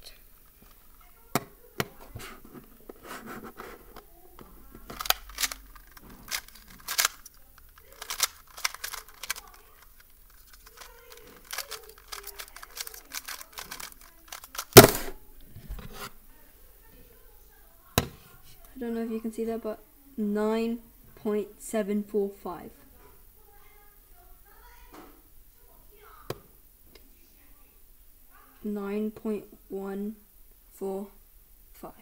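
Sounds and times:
plastic cube clicking and clacking: 4.8s - 15.1s.

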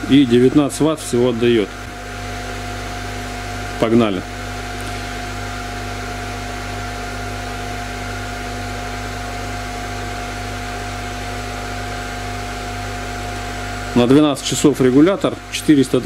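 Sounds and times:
electrical hum: 0.0s - 16.0s
fan whir: 0.0s - 16.0s.

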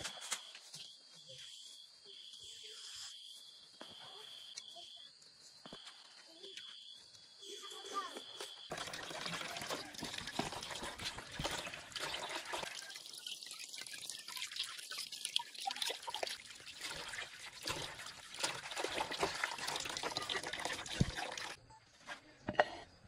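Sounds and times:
water running into a basin: 8.7s - 21.6s.

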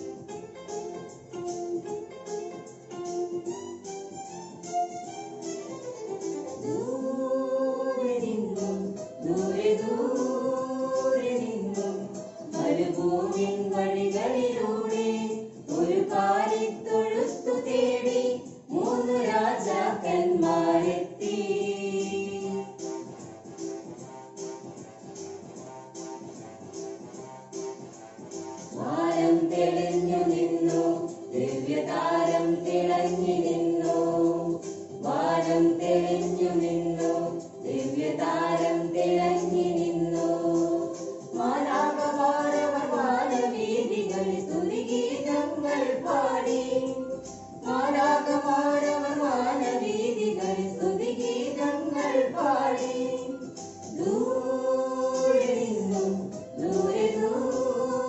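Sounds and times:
group singing in unison: 6.6s - 22.9s, 28.7s - 58.0s.

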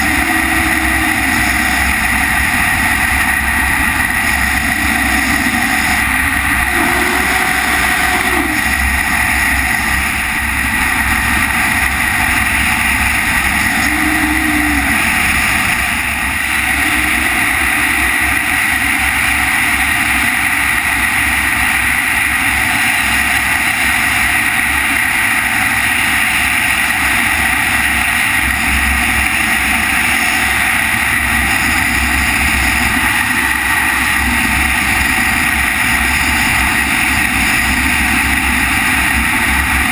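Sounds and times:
rushing wind buffeting microphone: 0.0s - 39.9s.

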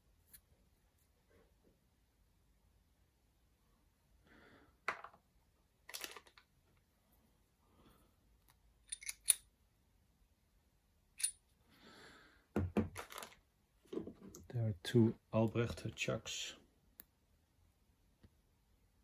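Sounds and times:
metal clicks and clinks: 8.9s - 9.5s, 11.2s - 11.4s
soft handling noise: 13.0s - 14.6s.

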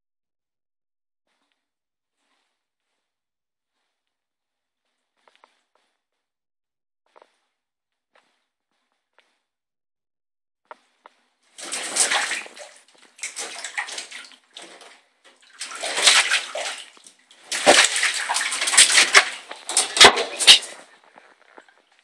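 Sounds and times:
cat splashing in shallow water: 11.6s - 21.7s.

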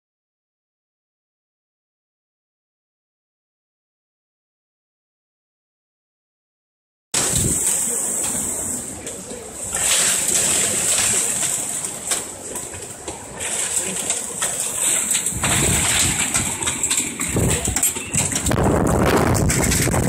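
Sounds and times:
wind buffeting microphone: 7.2s - 8.8s, 12.7s - 20.0s
rain and hail pelting: 7.2s - 20.0s
wind gusting: 7.2s - 20.0s.

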